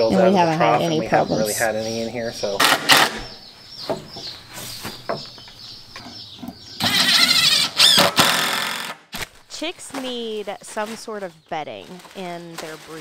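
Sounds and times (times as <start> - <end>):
cordless drill driving screws: 6.8 - 9.0.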